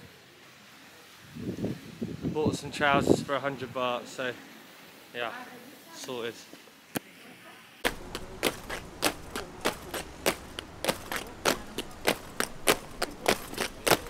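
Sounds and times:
boots marching on stone: 7.9s - 14.0s
lighter footfalls: 7.9s - 14.0s.

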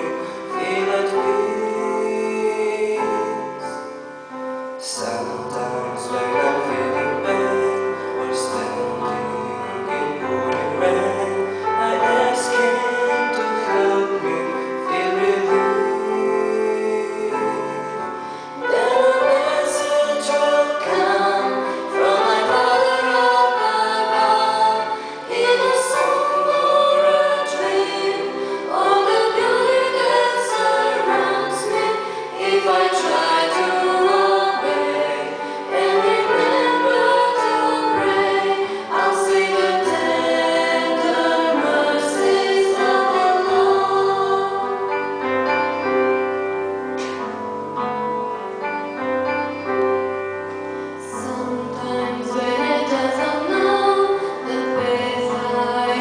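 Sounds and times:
man singing: 0.0s - 3.8s, 4.8s - 22.8s
women singing harmony: 0.0s - 4.0s, 5.0s - 45.3s, 51.0s - 56.0s.

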